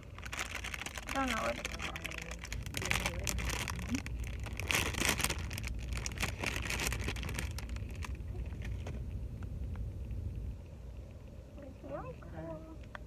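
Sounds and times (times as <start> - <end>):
plastic bag crinkling: 0.0 - 8.9
car cabin road rumble: 0.0 - 13.0.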